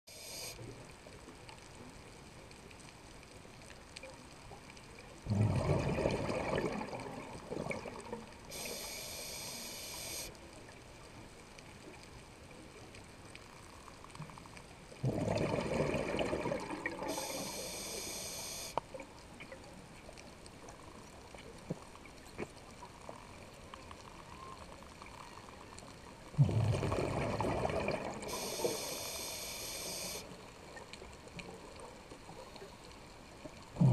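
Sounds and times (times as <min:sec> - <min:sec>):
regulator hiss of inhaling: 0:00.1 - 0:00.7, 0:08.5 - 0:10.3, 0:17.1 - 0:18.8, 0:28.3 - 0:30.3
exhaled bubbles underwater: 0:05.3 - 0:09.0, 0:15.0 - 0:17.8, 0:26.3 - 0:29.0, 0:33.7 - 0:33.9.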